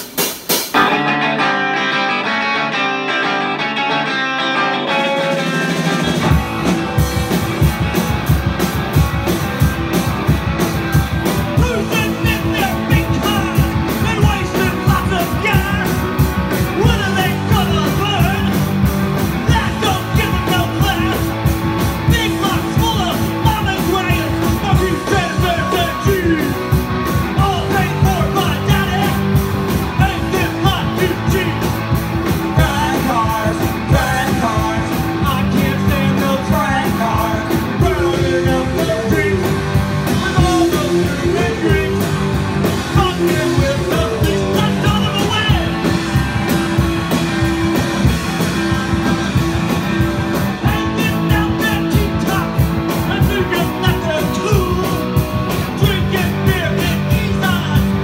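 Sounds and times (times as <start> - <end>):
bass guitar: 0.0 - 58.0
drum kit: 0.0 - 58.0
electric guitar: 0.7 - 58.0
person singing: 11.5 - 18.7, 19.4 - 21.3, 22.0 - 26.6, 27.2 - 31.8, 32.4 - 46.0, 50.6 - 58.0.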